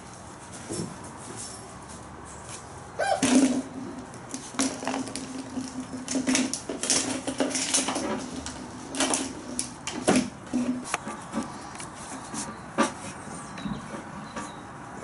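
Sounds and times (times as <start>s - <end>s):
small objects being bumped: 3.2s - 11.5s.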